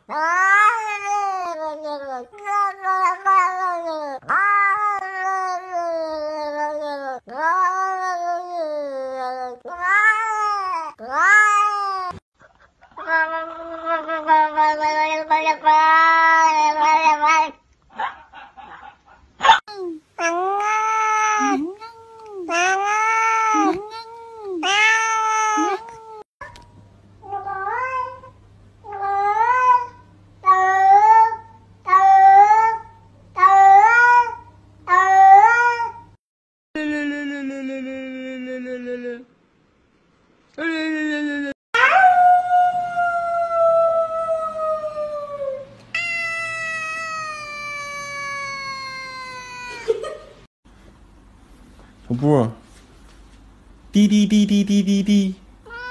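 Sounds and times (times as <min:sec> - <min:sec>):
cat meowing: 0:00.1 - 0:12.2, 0:20.2 - 0:26.2, 0:46.0 - 0:49.8, 0:55.7 - 0:55.9.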